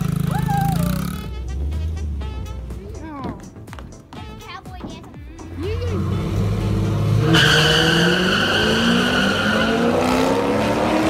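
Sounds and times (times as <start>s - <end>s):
car engines accelerating: 0.0s - 3.2s, 5.4s - 11.0s
tyre squeal: 7.2s - 10.1s.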